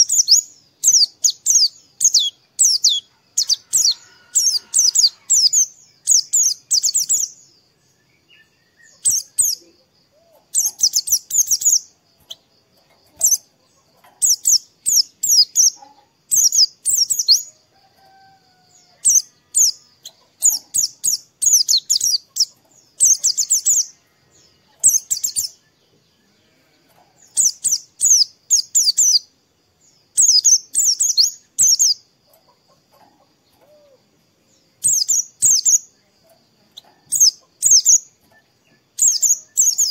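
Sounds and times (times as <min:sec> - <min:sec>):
bird twittering chirps: 0:00.0 - 0:39.9.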